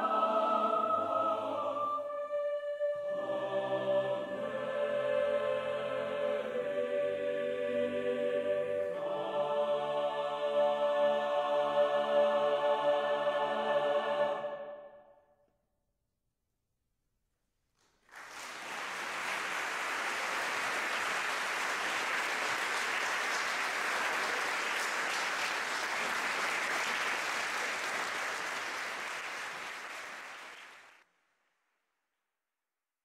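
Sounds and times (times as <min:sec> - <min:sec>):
audience applauding: 0:18.0 - 0:31.0.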